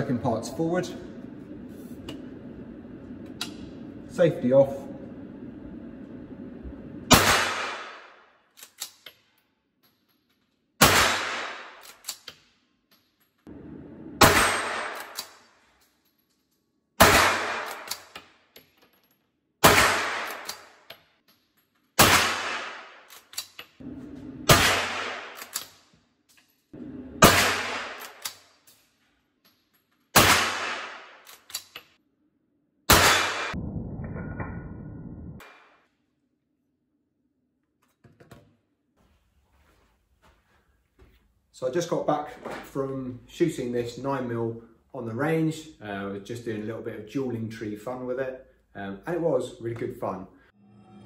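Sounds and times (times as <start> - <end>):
rifle shots echoing indoors: 7.1 - 8.9, 10.8 - 12.2, 14.2 - 15.4, 17.0 - 18.2, 19.6 - 20.8, 22.0 - 23.2, 24.4 - 25.9, 27.2 - 28.6, 30.1 - 31.5, 32.9 - 33.6.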